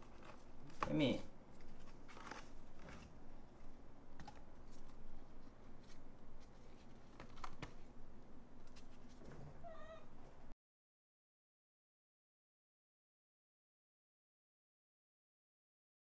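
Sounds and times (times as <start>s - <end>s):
kitten mewing: 9.6s - 10.1s.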